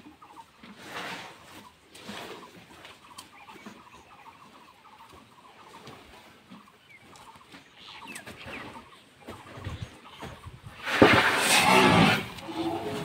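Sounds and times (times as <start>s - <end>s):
bird clucking chatter: 1.4s - 10.8s.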